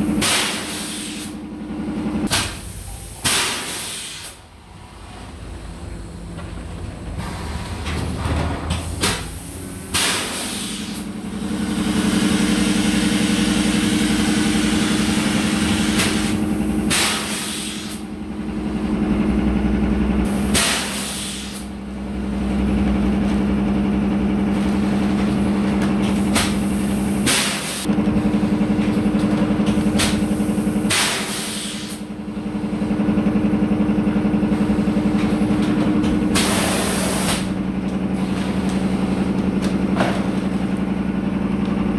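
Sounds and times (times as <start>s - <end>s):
factory machinery humming: 0.0s - 41.9s
compressed air hiss: 2.5s - 4.4s, 9.3s - 11.1s, 15.8s - 18.0s, 20.3s - 21.7s, 30.3s - 32.0s, 36.4s - 37.5s.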